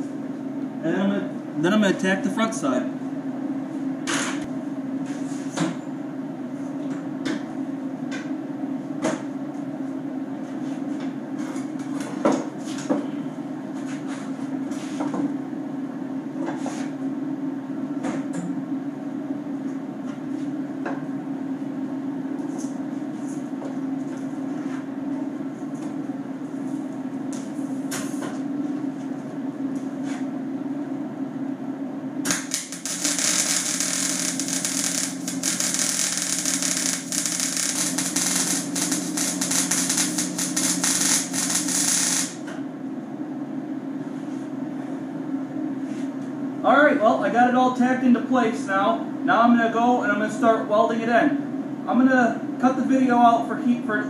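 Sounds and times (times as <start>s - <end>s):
arc welder electrical hum: 0.0s - 53.1s
welding arc crackling hiss: 32.3s - 42.5s.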